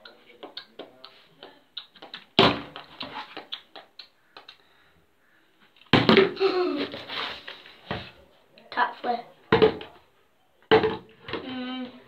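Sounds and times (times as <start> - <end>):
plastic bottle knocking on hard floor: 5.9 - 6.4, 9.5 - 9.9, 10.7 - 11.5.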